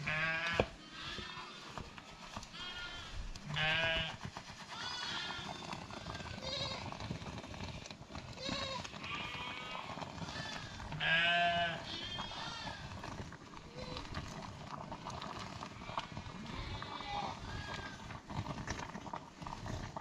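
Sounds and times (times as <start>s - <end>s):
flock of animals bleating: 0.0s - 4.2s, 4.8s - 7.0s, 8.4s - 13.1s, 16.0s - 18.0s.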